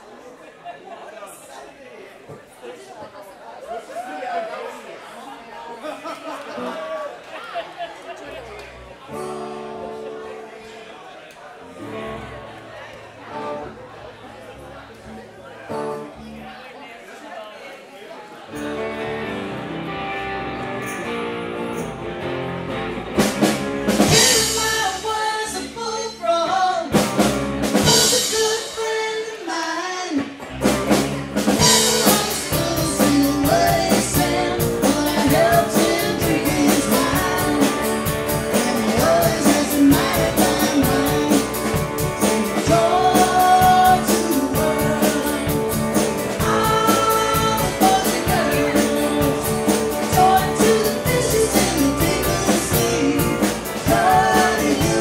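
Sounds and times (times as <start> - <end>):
live rock band playing: 18.5 - 29.4, 30.2 - 55.0
person singing: 24.0 - 30.4, 31.4 - 55.0.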